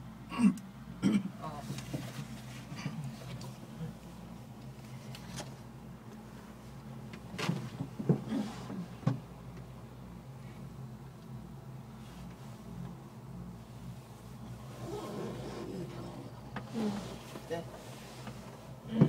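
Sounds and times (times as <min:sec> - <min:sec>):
gondola cabin hum: 0:00.0 - 0:19.0.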